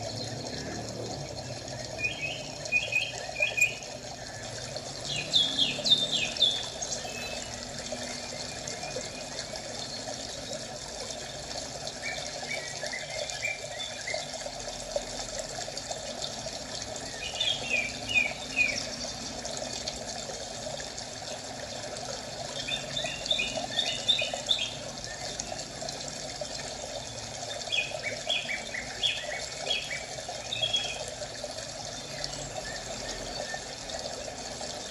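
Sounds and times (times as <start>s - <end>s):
running water: 0.0s - 34.9s
birds chirping: 1.9s - 10.2s, 17.0s - 19.3s, 22.5s - 25.6s, 27.6s - 31.2s.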